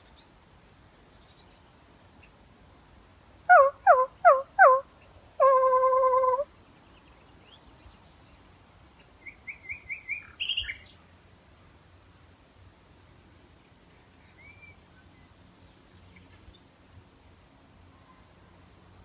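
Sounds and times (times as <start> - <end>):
nightingale singing: 9.0 - 11.0, 14.2 - 16.7.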